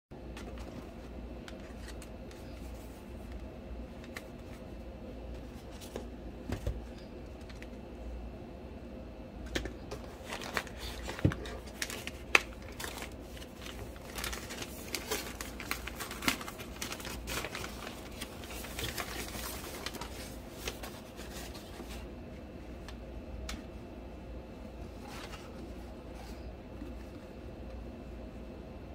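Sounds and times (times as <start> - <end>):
plastic packaging crinkling: 9.5 - 22.0.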